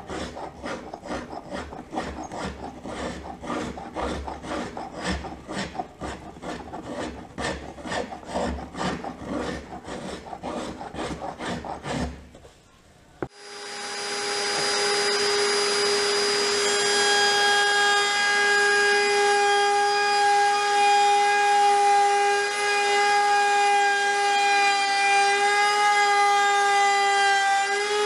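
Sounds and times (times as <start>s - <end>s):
hand tool shaving wood: 0.0s - 12.4s
router high whine: 13.2s - 28.0s.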